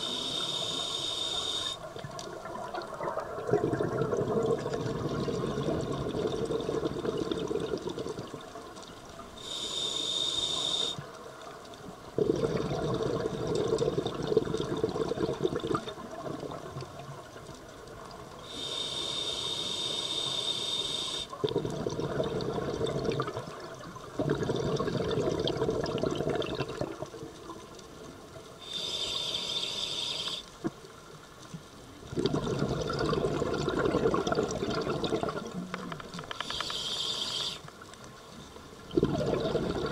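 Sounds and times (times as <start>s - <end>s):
regulator inhale hiss: 0.0s - 1.9s, 9.3s - 11.2s, 18.4s - 21.4s, 28.6s - 30.6s, 36.2s - 37.8s
exhaled bubbles underwater: 1.6s - 8.8s, 12.0s - 17.4s, 21.3s - 27.7s, 32.0s - 36.8s, 38.8s - 39.9s.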